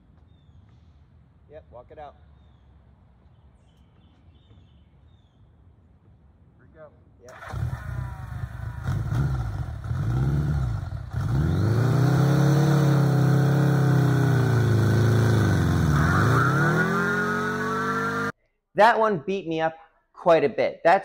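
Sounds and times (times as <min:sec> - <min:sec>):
motorcycle engine revving: 0:07.3 - 0:18.4.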